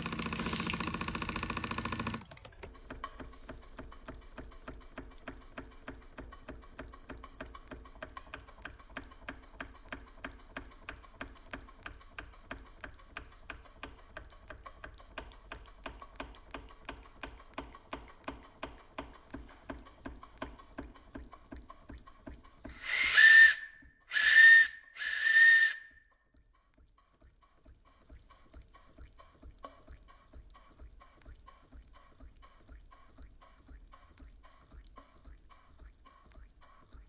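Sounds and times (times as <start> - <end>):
model steam engine chuffing: 0.0 - 26.0.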